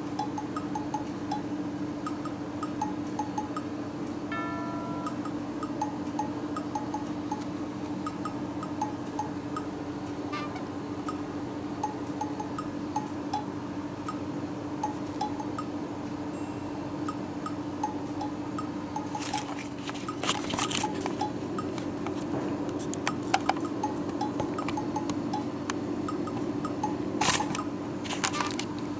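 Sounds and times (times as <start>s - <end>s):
low hum: 4.3s - 6.2s.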